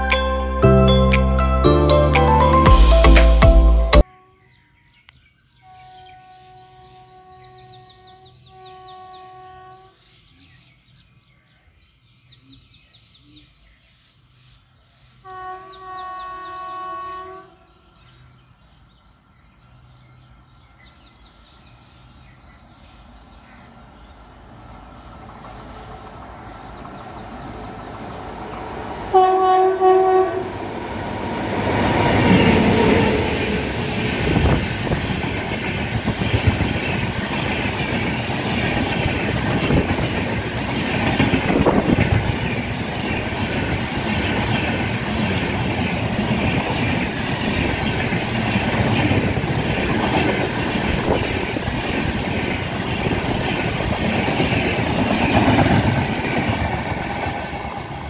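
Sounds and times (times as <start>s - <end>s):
locomotive horn: 0.0s - 4.6s, 5.6s - 10.0s, 15.2s - 17.8s, 29.1s - 30.7s
train rumble: 21.0s - 58.0s.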